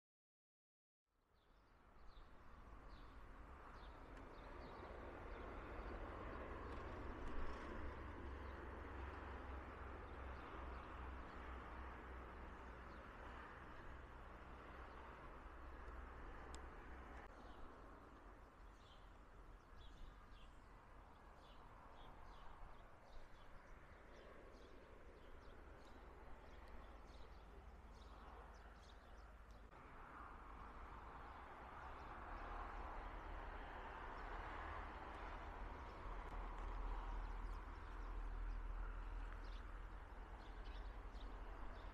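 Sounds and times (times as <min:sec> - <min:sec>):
wind rumble on microphone: 0:03.0 - 0:15.1.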